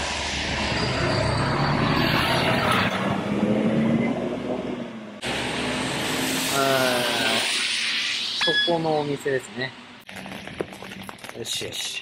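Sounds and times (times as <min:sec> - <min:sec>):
bus engine accelerating: 0:00.0 - 0:07.6
tyres hissing on wet road: 0:05.2 - 0:09.0.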